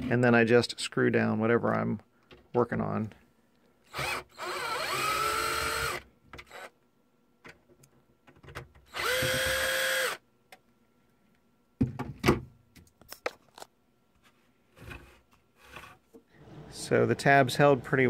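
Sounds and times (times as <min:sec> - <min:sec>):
cordless drill whining: 0:03.9 - 0:06.7, 0:08.9 - 0:10.2.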